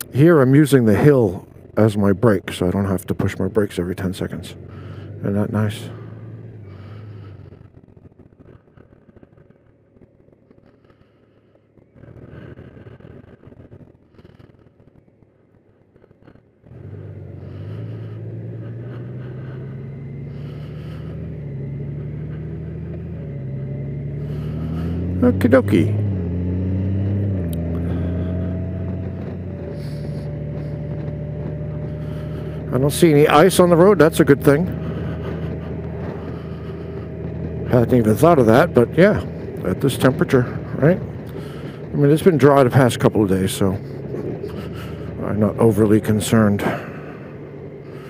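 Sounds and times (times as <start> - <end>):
motorcycle engine running quietly: 0.0 - 48.0.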